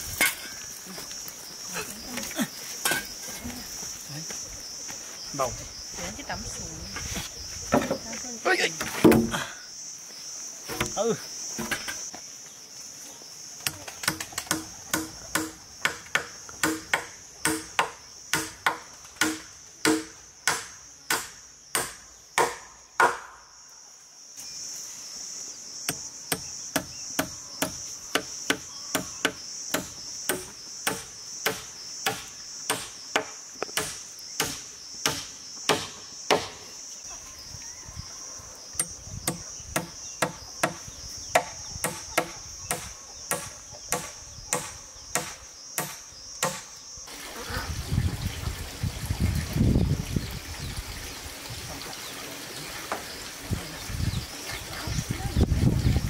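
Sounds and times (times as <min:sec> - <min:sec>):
high insect drone: 0:00.0 - 0:56.0.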